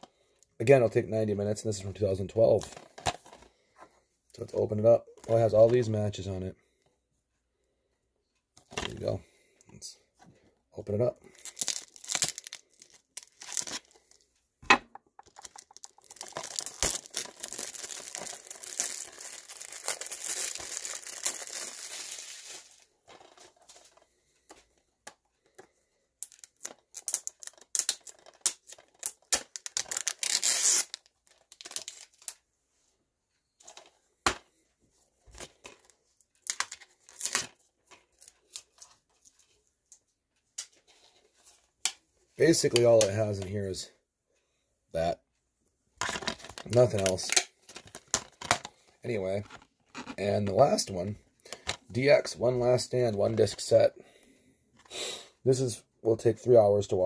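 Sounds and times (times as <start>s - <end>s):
plastic wrap tearing and crinkling: 11.2s - 14.2s, 15.2s - 24.0s, 26.2s - 32.4s, 36.4s - 38.8s, 46.0s - 50.9s.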